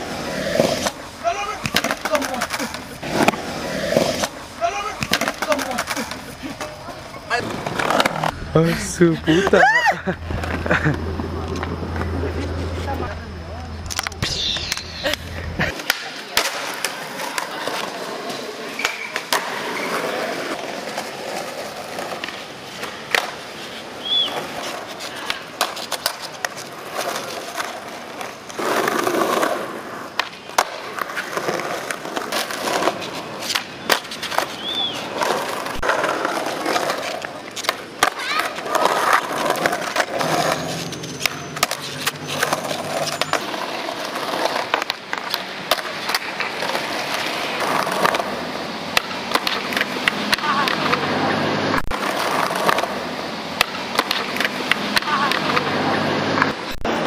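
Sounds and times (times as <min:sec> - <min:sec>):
skateboard clacks and landings: 0:00.0 - 0:08.4, 0:13.8 - 0:23.5, 0:24.1 - 0:57.0
skateboards rolling on concrete: 0:00.0 - 0:57.0.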